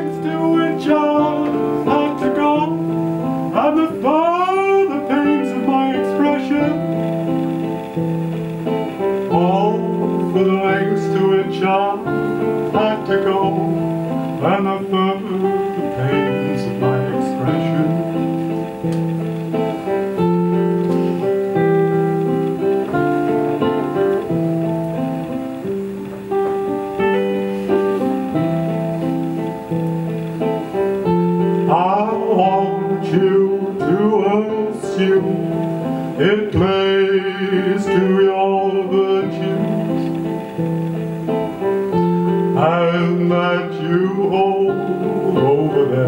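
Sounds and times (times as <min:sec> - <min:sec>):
person singing: 0:00.0 - 0:07.4, 0:08.7 - 0:19.0, 0:30.4 - 0:40.6, 0:41.6 - 0:46.0
layered guitar pattern: 0:00.0 - 0:46.0.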